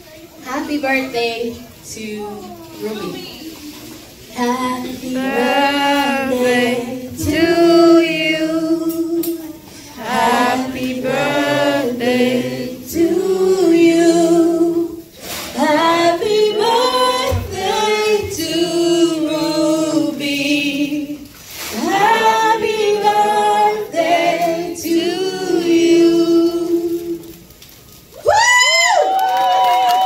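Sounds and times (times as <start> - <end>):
group singing without accompaniment: 4.4 - 27.4.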